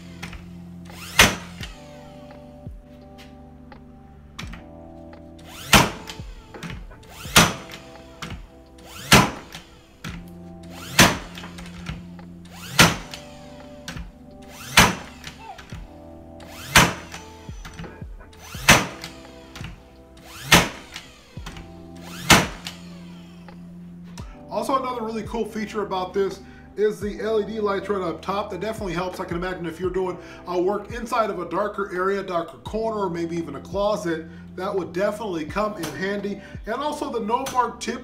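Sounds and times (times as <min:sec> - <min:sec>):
background music: 0:00.0 - 0:38.0
nail gun firing into wood: 0:01.0 - 0:01.8, 0:05.6 - 0:08.4, 0:09.0 - 0:10.2, 0:10.8 - 0:12.0, 0:12.6 - 0:13.3, 0:14.6 - 0:15.7, 0:16.6 - 0:17.9, 0:18.5 - 0:19.8, 0:20.4 - 0:22.8.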